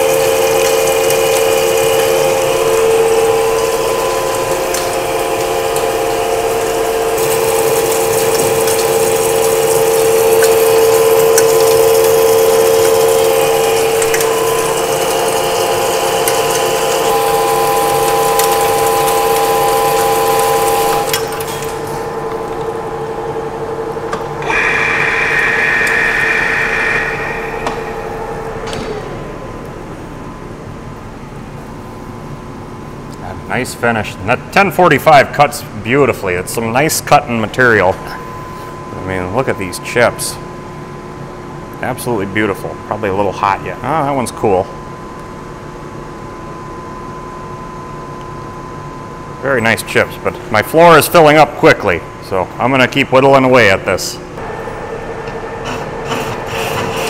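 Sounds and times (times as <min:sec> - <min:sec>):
lathe headstock whine: 0:00.0 - 0:31.6, 0:54.4 - 0:57.0
cutting hiss: 0:24.4 - 0:29.1.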